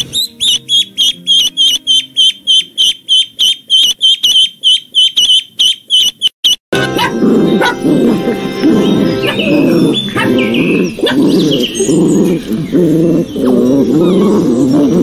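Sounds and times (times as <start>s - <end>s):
background music: 0.0s - 3.2s, 6.8s - 13.8s
puppy yapping and whining: 6.8s - 15.0s.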